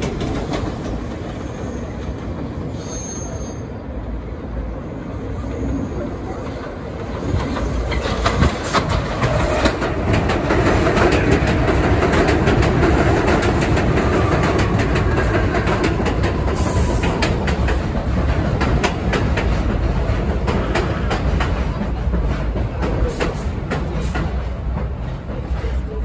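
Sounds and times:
train wheels rumbling on rails: 0.0 - 26.0
wheels clicking over rail joints: 6.4 - 25.9.

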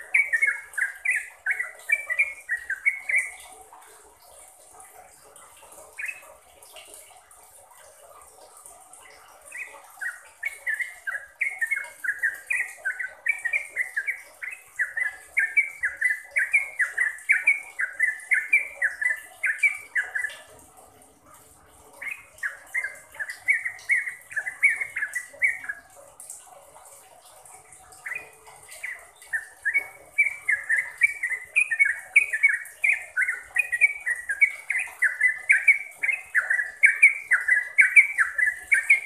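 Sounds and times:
bird singing bubbly notes: 0.0 - 39.0.

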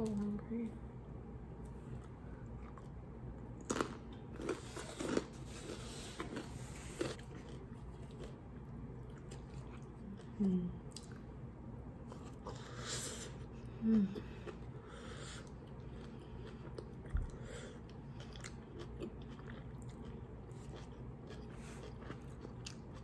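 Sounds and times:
person chewing food: 1.6 - 11.3, 12.0 - 23.0
person humming: 13.8 - 14.3.

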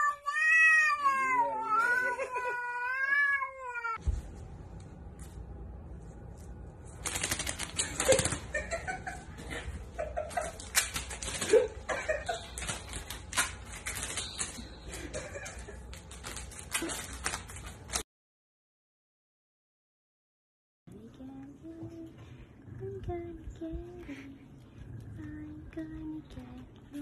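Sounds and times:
paper crackling on tile floor: 6.2 - 8.8, 10.2 - 18.0.

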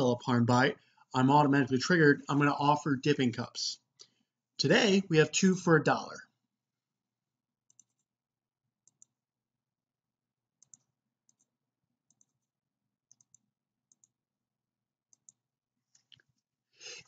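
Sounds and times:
computer mouse clicks: 7.7 - 8.1, 8.8 - 9.2, 10.6 - 11.5, 12.1 - 12.5, 13.1 - 14.2, 15.1 - 15.4.

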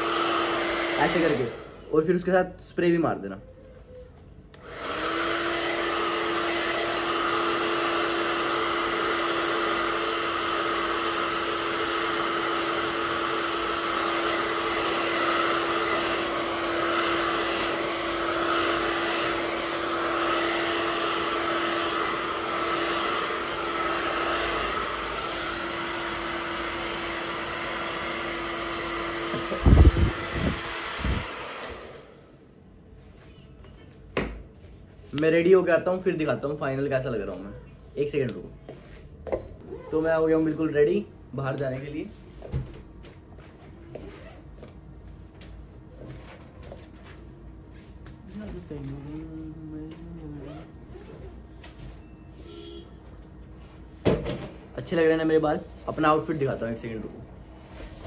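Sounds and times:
hair dryer blowing: 0.0 - 2.3, 4.5 - 32.6, 39.6 - 40.8, 54.8 - 58.0
hair dryer switch: 4.5 - 32.1.

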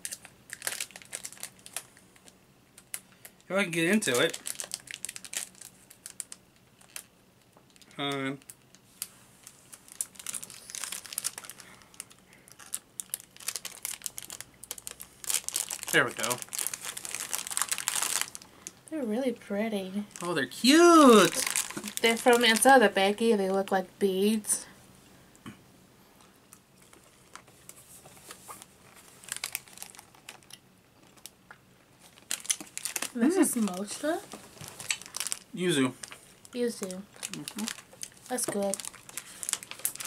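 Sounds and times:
plastic bag crinkling: 0.0 - 7.1, 7.7 - 18.8, 20.1 - 23.2, 26.8 - 31.3, 32.0 - 40.0
candies clicking in mouth: 32.2 - 33.2, 34.8 - 35.4.

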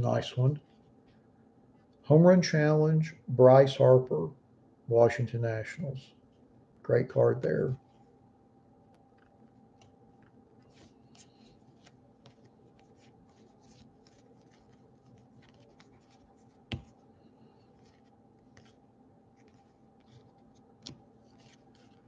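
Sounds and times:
faint steady hum: 0.0 - 22.0
cards being flipped by hand: 9.1 - 22.0.

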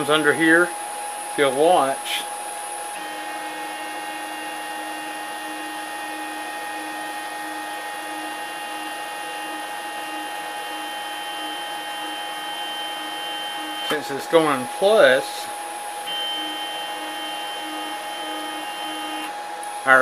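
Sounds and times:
stepper motor whine: 0.0 - 20.0.

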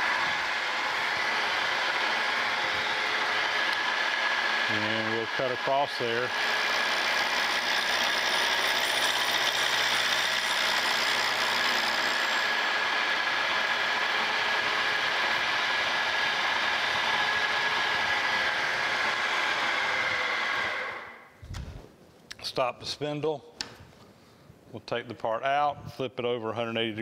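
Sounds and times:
metal cutting noise: 0.0 - 21.2
milling machine whine: 0.0 - 21.2.

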